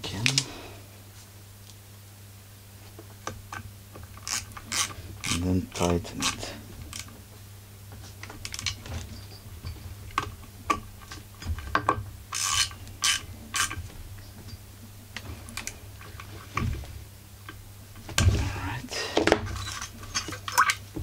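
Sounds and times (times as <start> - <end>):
bit ratchet clicking: 12.3 - 13.8.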